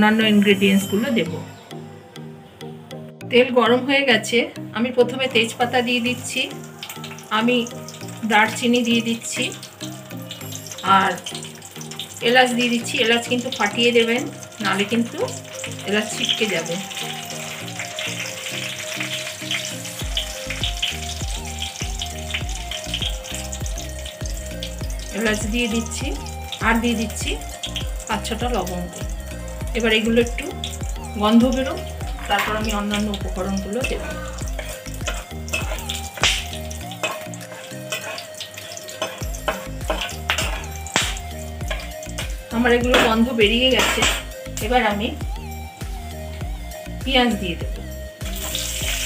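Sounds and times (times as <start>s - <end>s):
background music with beat: 0.0s - 3.4s, 5.5s - 49.0s
spices sizzling in hot oil: 5.0s - 49.0s
metal spatula scraping a pan: 33.8s - 43.2s.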